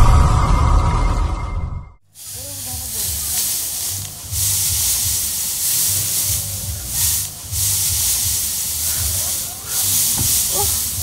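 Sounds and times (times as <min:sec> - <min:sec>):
dry straw rustling and crackling: 0:02.1 - 0:11.0
low rhythmic thudding: 0:02.6 - 0:11.0.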